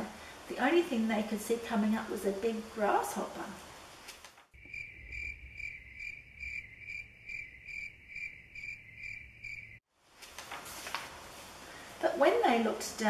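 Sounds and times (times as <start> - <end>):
cricket-like insect chirping: 4.6 - 9.8.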